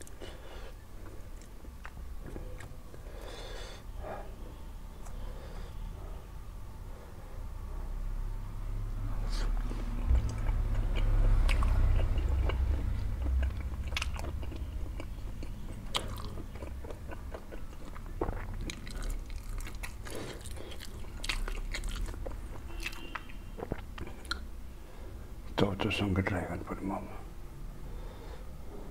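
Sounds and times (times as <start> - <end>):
close-up chewing with mouth smacks: 1.0 - 3.0, 9.4 - 24.5.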